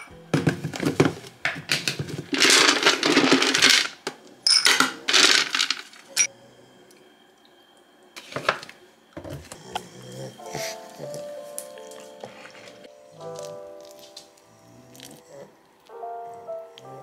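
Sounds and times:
dry kibble rattling into bowl: 0:01.7 - 0:04.1, 0:04.7 - 0:06.3.

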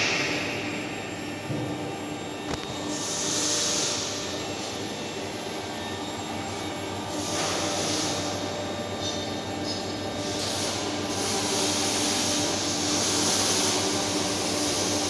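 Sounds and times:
welding machine roar and hum: 0:00.0 - 0:15.0
welding hiss: 0:02.8 - 0:04.7, 0:07.0 - 0:15.0.

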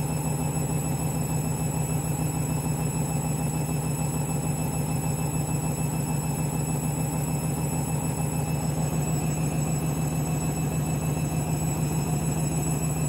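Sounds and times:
washing machine spinning: 0:06.2 - 0:13.0.

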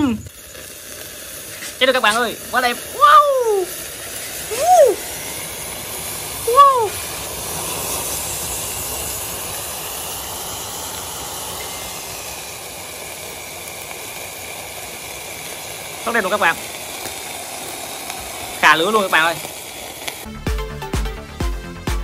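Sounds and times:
firework fountain hissing: 0:00.0 - 0:22.0
man exclaiming: 0:02.6 - 0:03.8, 0:04.5 - 0:05.0, 0:06.5 - 0:07.0.

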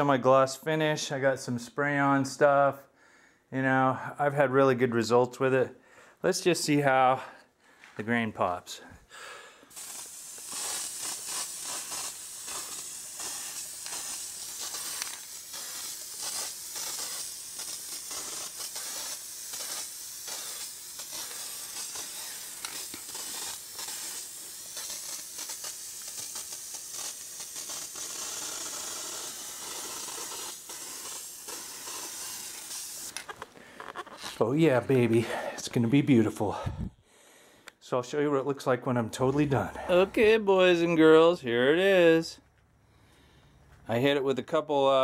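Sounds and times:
aerosol spray can hissing: 0:09.7 - 0:35.0.

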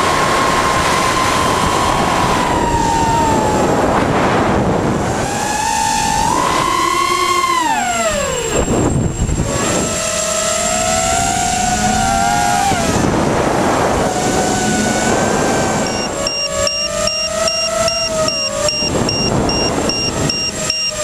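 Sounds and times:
quadcopter motors whining: 0:00.0 - 0:21.0
high beeping: 0:15.8 - 0:21.0.

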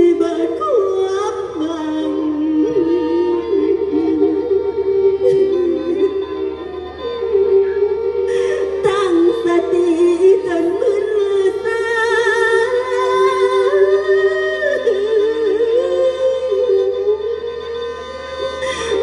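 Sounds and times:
droning accompaniment: 0:00.0 - 0:19.0
singer's wavering vocals: 0:00.0 - 0:19.0.

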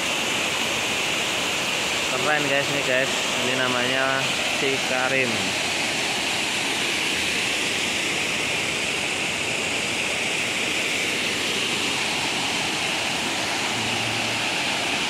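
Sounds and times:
waterfall rushing: 0:00.0 - 0:15.0.

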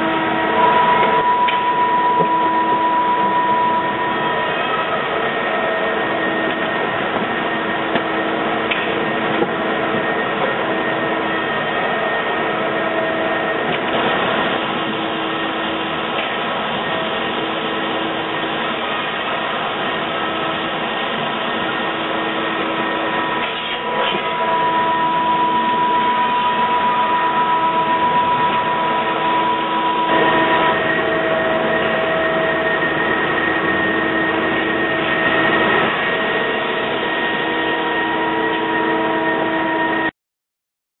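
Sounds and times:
machinery motors humming: 0:00.0 - 0:40.1.

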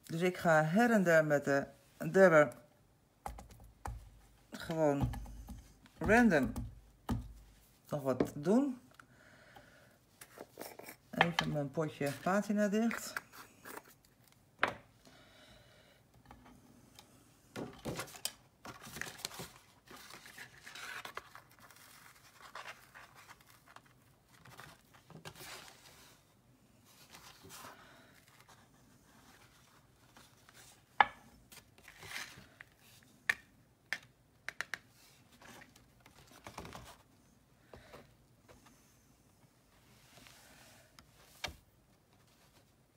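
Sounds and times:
paper rustling and scraping: 0:17.8 - 0:30.9, 0:31.5 - 0:33.0.

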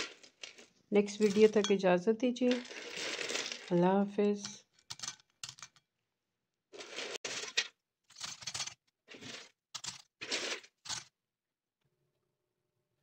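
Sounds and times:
popcorn rattling in a ceramic bowl: 0:00.0 - 0:01.8, 0:02.5 - 0:05.8, 0:06.8 - 0:11.1.

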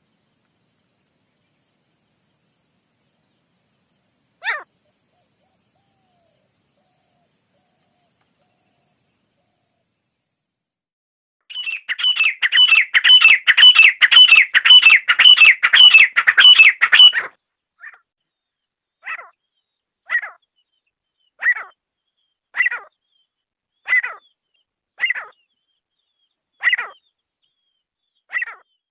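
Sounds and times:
partridge calling: 0:04.4 - 0:08.8, 0:11.5 - 0:18.1, 0:19.0 - 0:23.2, 0:23.8 - 0:28.8.

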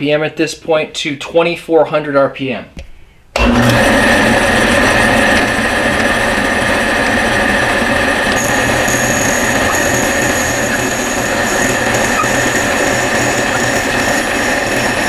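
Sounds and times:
cutter shaving wood: 0:03.4 - 0:15.0
drill press motor hum with whine: 0:03.4 - 0:15.0
higher whine: 0:03.4 - 0:15.0.

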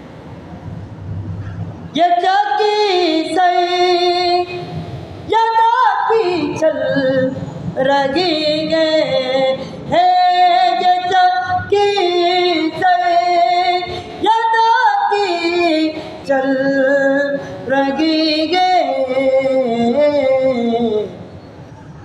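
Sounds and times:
person singing long notes: 0:05.3 - 0:21.2.

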